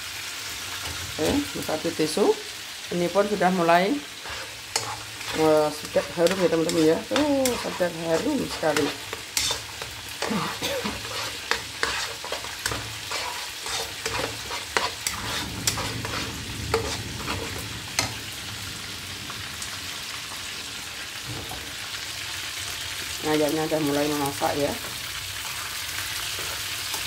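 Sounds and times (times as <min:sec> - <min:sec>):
frying sizzle: 0:00.0 - 0:27.0
spatula scraping a wok: 0:03.2 - 0:18.3, 0:25.5 - 0:27.0.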